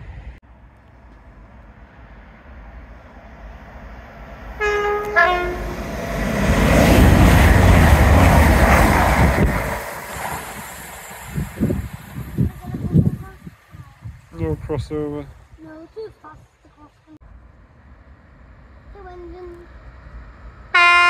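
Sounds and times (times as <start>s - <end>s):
train rumbling past: 0.0s - 16.1s, 17.2s - 21.0s
two-tone train horn: 4.6s - 5.8s, 20.7s - 21.0s.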